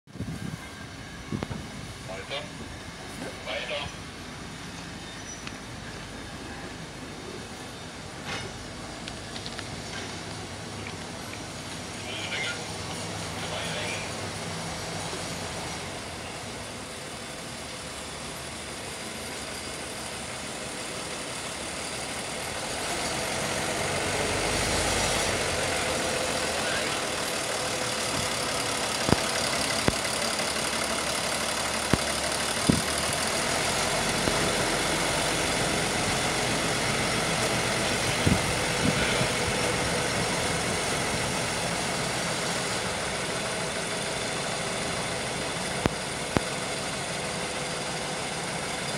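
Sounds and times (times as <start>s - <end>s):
diesel locomotive engine running: 0.1s - 48.9s
wheels clacking over rail joints: 8.0s - 11.9s, 25.1s - 48.9s.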